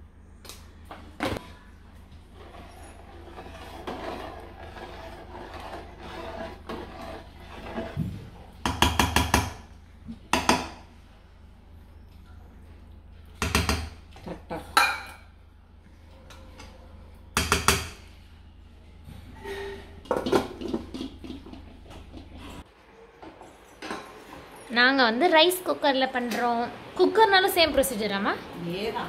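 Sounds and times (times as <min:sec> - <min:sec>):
spoon stirring rice in pot: 0:02.4 - 0:08.0.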